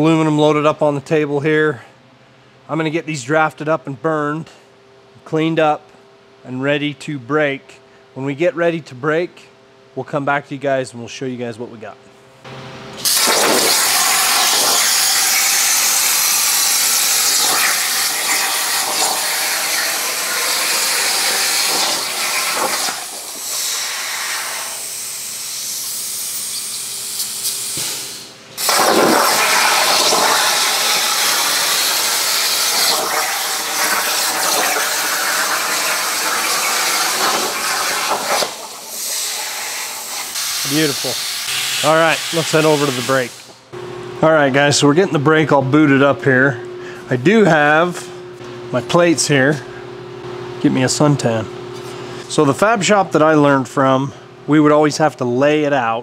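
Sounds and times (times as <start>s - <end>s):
plasma cutter hissing: 13.0s - 43.6s.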